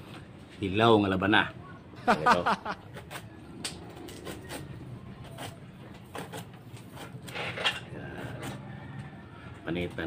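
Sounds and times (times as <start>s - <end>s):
knife scrapes and clicks: 4.0s - 8.6s.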